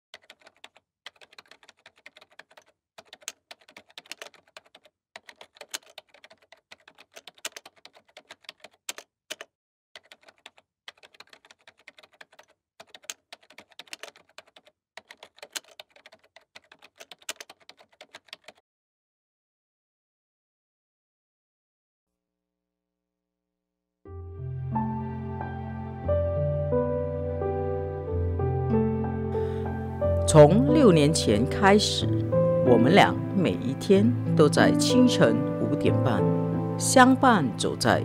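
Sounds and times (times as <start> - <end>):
keyboard typing clicks: 0.2 - 18.6.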